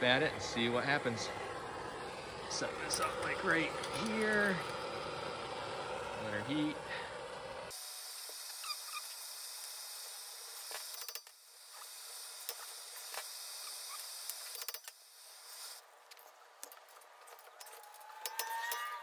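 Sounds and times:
torch flame hissing: 0.0s - 15.8s
tools clicking and tapping: 16.2s - 18.9s.

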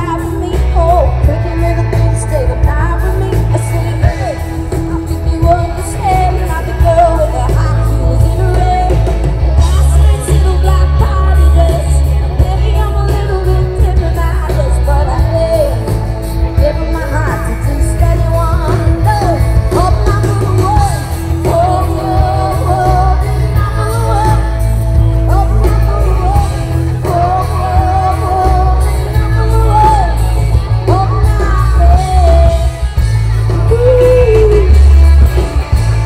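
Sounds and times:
live pop-rock band: 0.0s - 36.0s
woman singing: 0.0s - 36.0s.

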